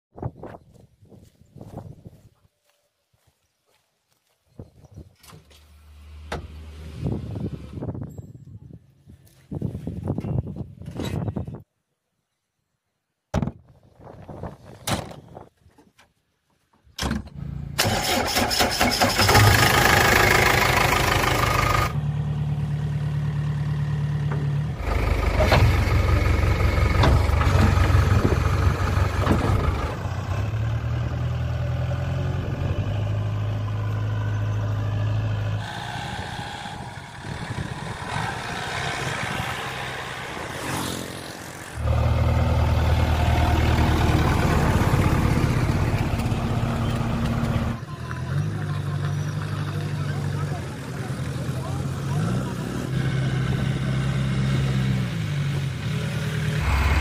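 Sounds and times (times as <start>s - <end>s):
backhoe diesel engine idling and revving: 17.3s - 57.0s.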